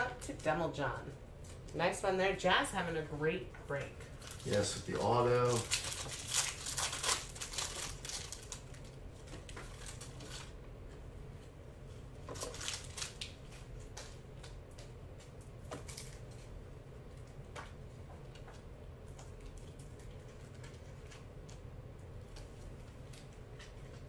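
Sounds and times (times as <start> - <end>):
foil wrapper crinkling: 4.1 - 10.6, 12.2 - 15.0, 15.6 - 16.6
cards clicking and rustling: 4.3 - 10.5.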